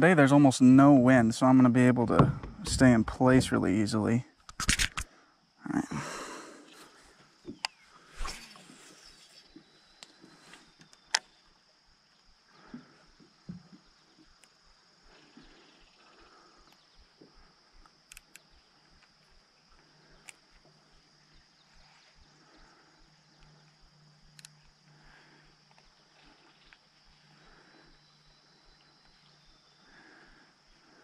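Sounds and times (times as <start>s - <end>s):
short sharp clicks: 4.4s - 5.1s
high-pitched insect drone: 5.6s - 31.0s.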